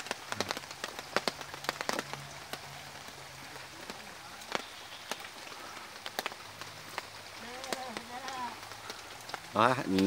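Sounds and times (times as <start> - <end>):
outdoor hiss: 0.0 - 10.0.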